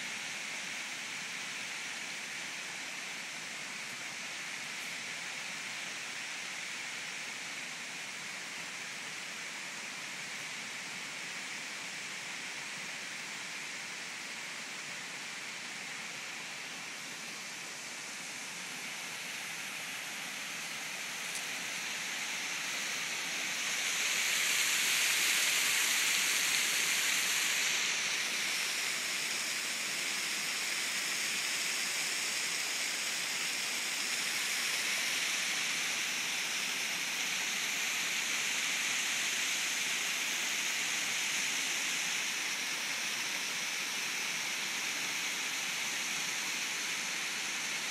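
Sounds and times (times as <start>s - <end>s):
waterfall rushing over rocks: 16.5s - 47.9s.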